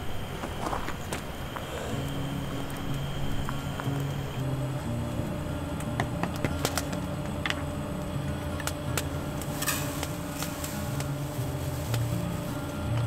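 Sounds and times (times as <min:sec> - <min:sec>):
paper wrapping crinkling: 0:08.5 - 0:13.0.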